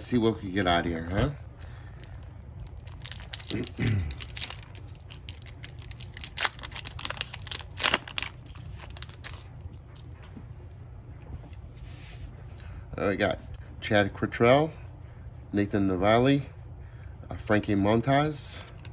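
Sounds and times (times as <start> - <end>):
wrapper tearing and crinkling: 2.1 - 9.5.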